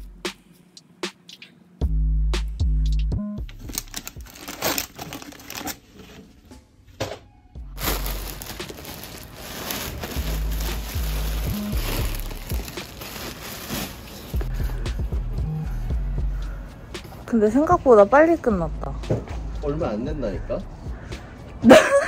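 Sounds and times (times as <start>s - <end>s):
background music with deep bass: 0.0s - 4.4s, 7.6s - 13.7s, 14.3s - 22.0s
plastic bags crinkling: 3.6s - 6.2s, 7.8s - 14.5s.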